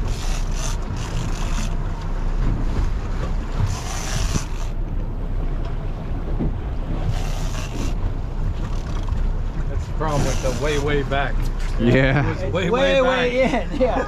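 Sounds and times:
boat engine rumble: 0:00.0 - 0:14.0.

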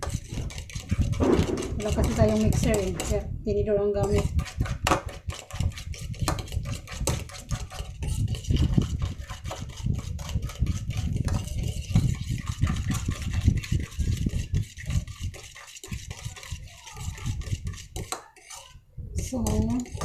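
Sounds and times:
fork clicking against bowl: 0:19.3 - 0:20.0.

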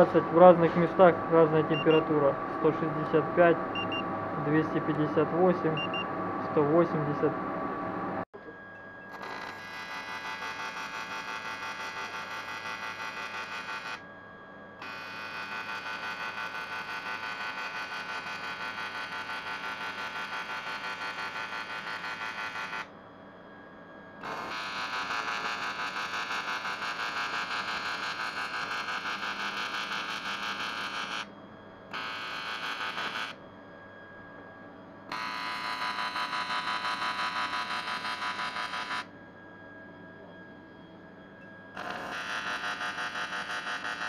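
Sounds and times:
welding arc buzzing: 0:41.8 - 0:44.0.

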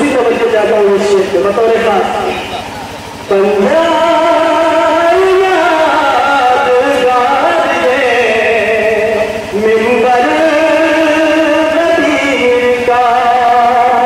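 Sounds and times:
man singing into a microphone: 0:03.3 - 0:14.0.

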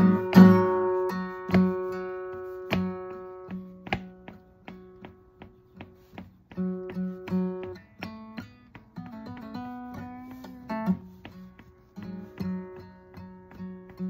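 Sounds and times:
acoustic guitar playing: 0:00.0 - 0:14.0.

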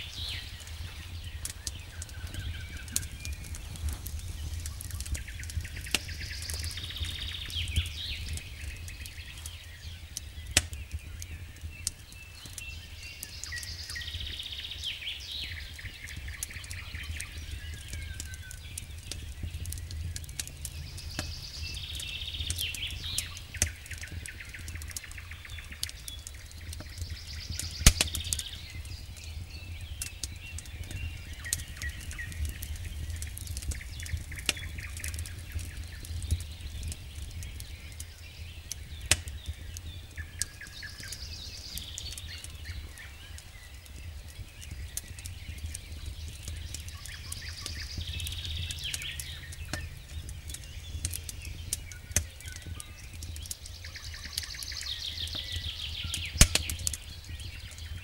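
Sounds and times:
steady low rumble: 0:00.0 - 0:10.2, 0:15.8 - 0:40.4
campfire crackling and popping: 0:00.0 - 0:58.0.

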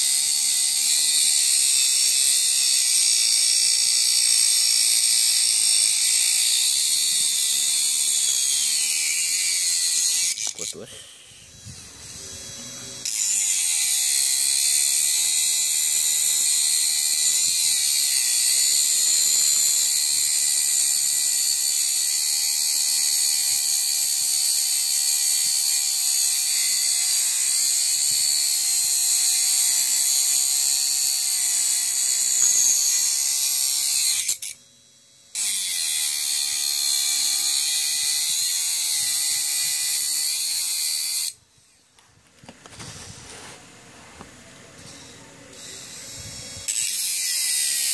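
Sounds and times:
grinder cutting into nail: 0:00.0 - 0:41.4, 0:44.8 - 0:47.9
electric motor whine: 0:05.8 - 0:22.0, 0:44.8 - 0:47.9.

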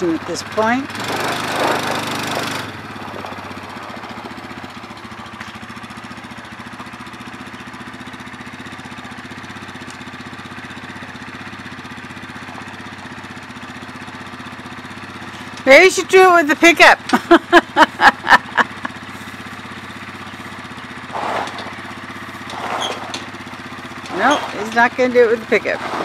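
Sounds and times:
atv engine idling: 0:00.0 - 0:26.0.

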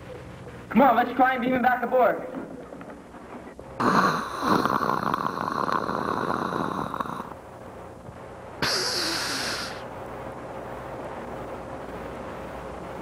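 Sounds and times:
hissing whoosh: 0:08.6 - 0:09.9.

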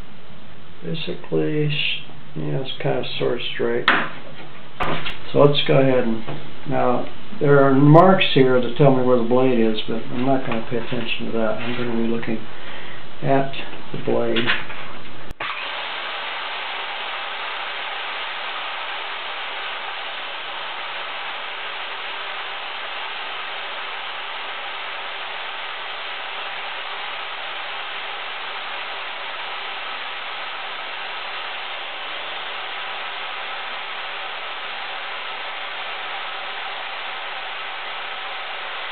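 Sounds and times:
circular saw cutting wood: 0:15.4 - 0:38.9.

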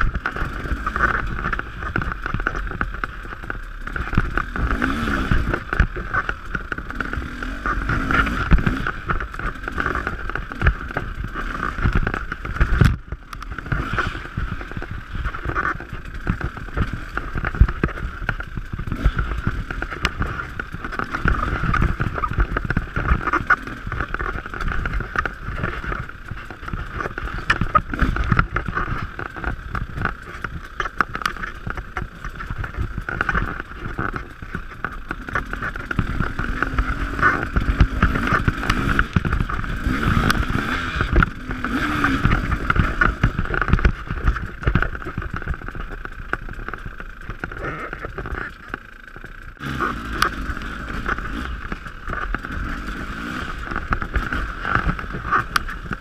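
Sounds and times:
bike knocking and rattling: 0:00.0 - 0:56.0
dirt bike engine: 0:00.0 - 0:56.0.

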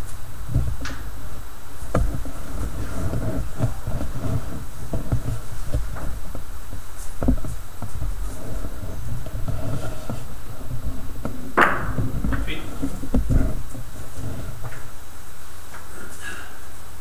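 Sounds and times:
microphone handling rumble: 0:00.0 - 0:16.0
soft knocks and bumps: 0:01.9 - 0:14.9.

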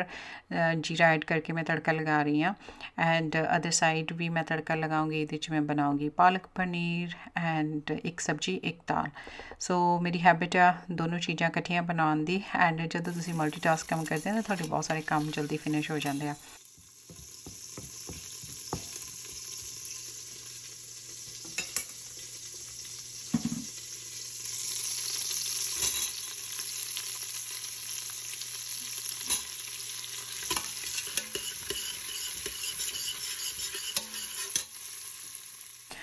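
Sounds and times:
seeds sizzling in hot oil: 0:13.0 - 0:36.0
spoon tapping and scraping pot: 0:16.8 - 0:19.8, 0:30.4 - 0:34.7.

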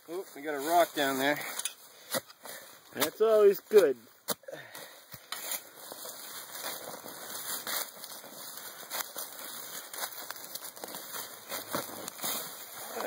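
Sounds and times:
hand scraping soil and leaves: 0:00.0 - 0:13.0.

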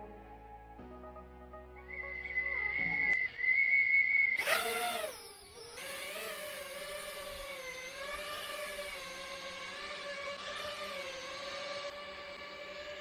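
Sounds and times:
steady high tone: 0:00.9 - 0:05.8
quadcopter motors whirring: 0:03.2 - 0:13.0.

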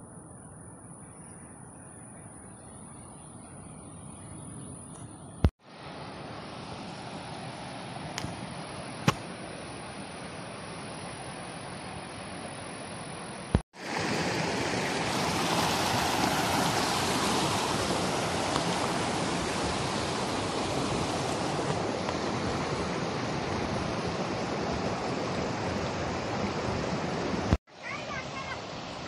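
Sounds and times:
river water rushing over rocks: 0:13.8 - 0:29.0.

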